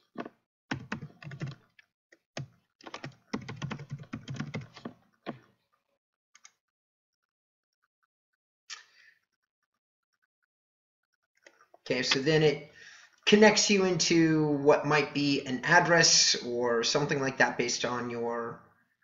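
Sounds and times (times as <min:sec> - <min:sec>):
typing on computer keyboard: 0:00.2 - 0:01.8, 0:02.4 - 0:05.5.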